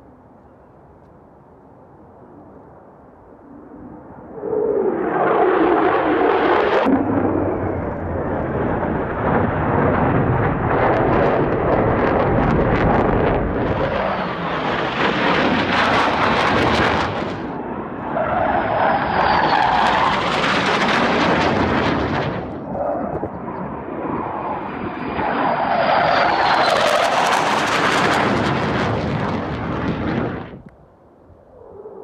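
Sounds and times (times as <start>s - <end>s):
fighter jets roaring overhead: 1.4s - 32.0s
thin falling whine: 13.7s - 30.4s.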